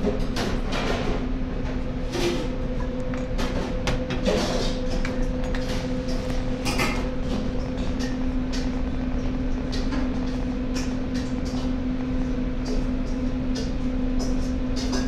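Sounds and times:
machine hum: 0.0s - 15.0s
utensils clicking and clinking: 2.2s - 8.8s.

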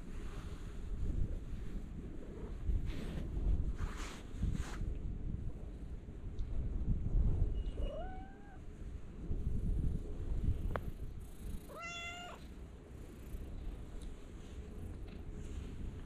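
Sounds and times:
cat meowing: 7.8s - 8.6s, 11.7s - 12.4s.

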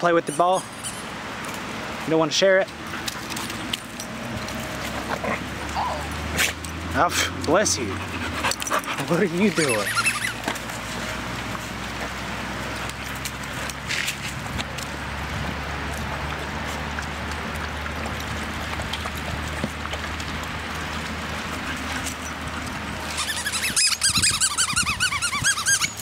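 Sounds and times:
dogs lapping water: 0.0s - 26.0s
puppy squealing and yelping: 0.3s - 1.1s, 7.9s - 10.6s, 23.0s - 26.0s.

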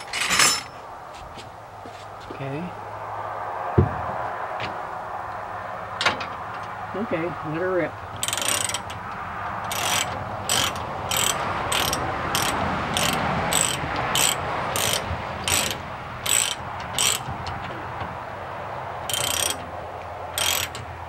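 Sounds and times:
ratchet strap pawl clicking: 8.2s - 17.3s, 19.1s - 19.7s, 20.3s - 20.9s.

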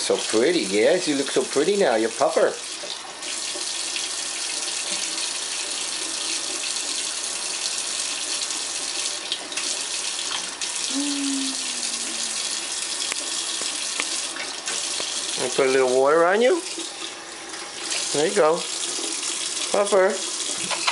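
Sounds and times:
faucet stream into sink: 0.0s - 20.9s
low hum dipping in pitch: 10.9s - 12.4s.

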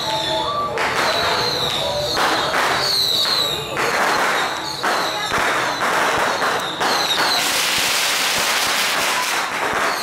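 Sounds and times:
firecrackers crackling: 0.0s - 10.0s.

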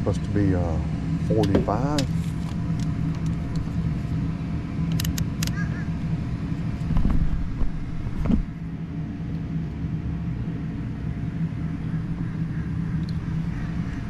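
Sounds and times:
low machinery hum: 0.0s - 14.0s
light clicks of probes: 1.4s - 3.7s, 4.9s - 5.6s, 13.0s - 13.2s.

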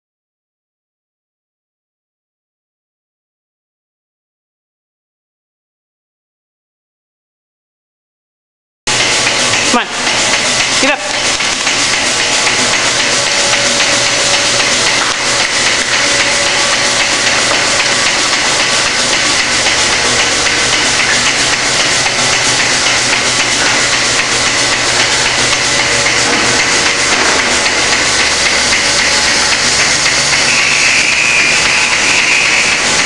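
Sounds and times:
pulsators clicking: 8.9s - 33.0s.

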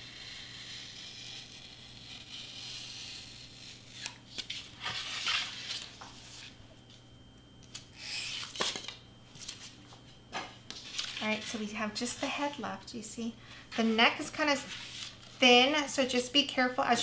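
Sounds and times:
hobby knife cutting foam board: 0.0s - 4.2s.

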